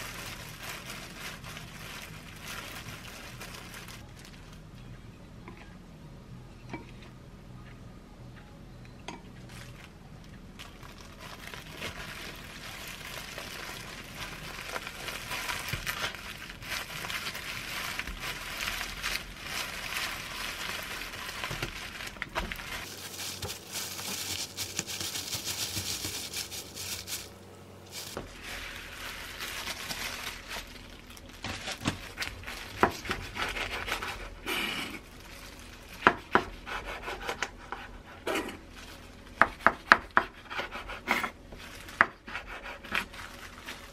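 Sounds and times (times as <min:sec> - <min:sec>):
plastic gloves crinkling: 0:00.0 - 0:04.7, 0:09.4 - 0:34.4, 0:35.0 - 0:36.7, 0:38.6 - 0:39.8, 0:41.3 - 0:43.9.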